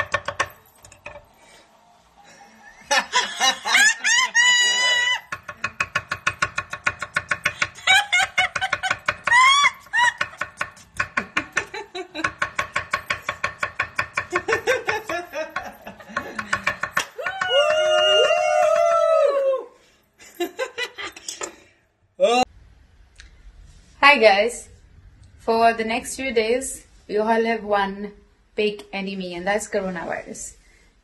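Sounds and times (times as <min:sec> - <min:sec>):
people whooping and squealing: 0:03.6 - 0:05.3, 0:09.2 - 0:10.3, 0:16.4 - 0:19.8.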